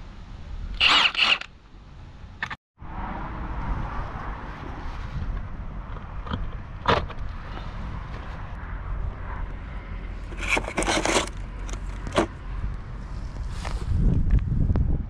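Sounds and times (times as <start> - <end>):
wind rumble on microphone: 2.8 - 10.6, 11.3 - 15.0
sockets rattling in plastic case: 10.4 - 12.3.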